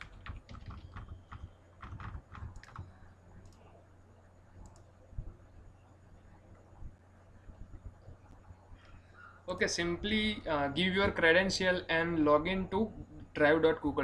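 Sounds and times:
keyboard and mouse clicks: 0.0 - 3.7, 4.6 - 4.9
faint low hum: 0.0 - 14.0.

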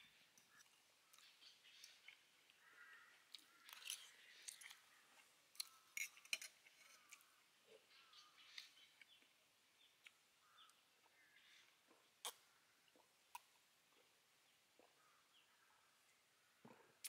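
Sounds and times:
birds calling: 0.0 - 6.1, 6.9 - 13.0, 14.8 - 16.6
chewing crunchy food: 3.3 - 7.9.

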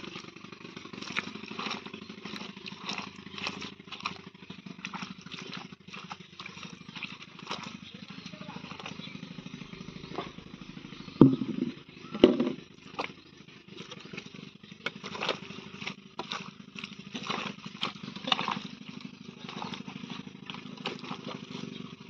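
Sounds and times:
wet squelches and slaps: 0.0 - 9.0, 11.3 - 22.0
engine hum: 0.0 - 22.0
heavy thuds in clay: 11.2 - 12.6.

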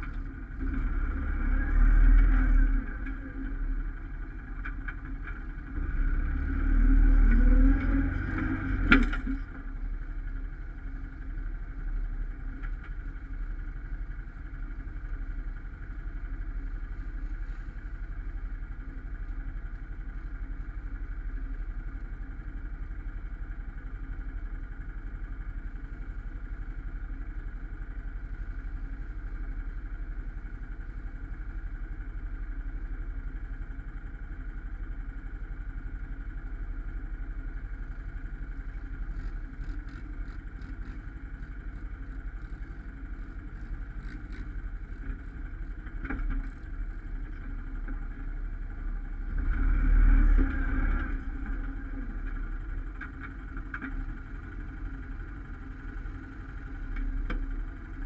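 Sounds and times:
quad bike engines idling: 0.0 - 49.5, 50.2 - 58.0
engine revving: 0.6 - 3.2, 5.7 - 9.4, 49.2 - 52.2.

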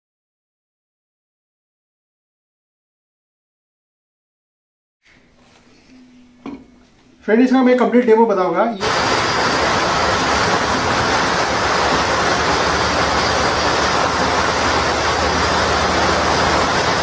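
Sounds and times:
spark fountains hissing: 8.8 - 17.0.

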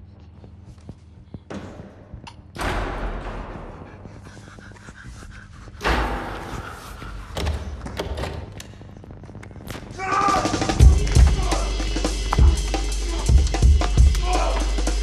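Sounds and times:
heavy slams echoing: 1.5 - 4.2, 5.8 - 8.4.

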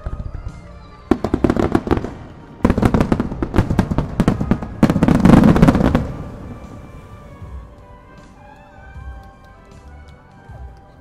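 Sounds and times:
fireworks bursting: 0.0 - 8.4.

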